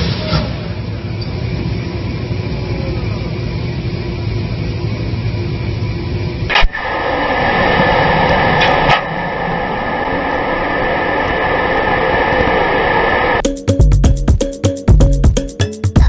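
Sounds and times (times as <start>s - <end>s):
thin high whine: 0.8s - 13.7s
loud rushing noise: 6.5s - 13.4s.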